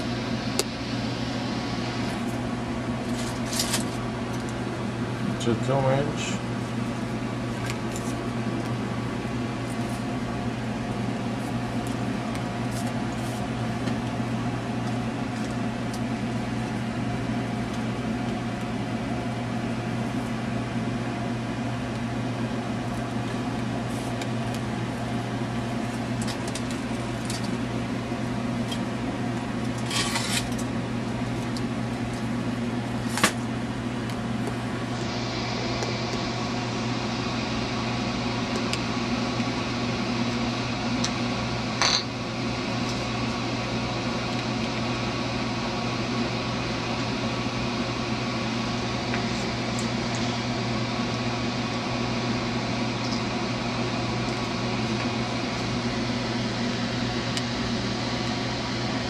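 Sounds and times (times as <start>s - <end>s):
low machine hum: 0.0s - 59.0s.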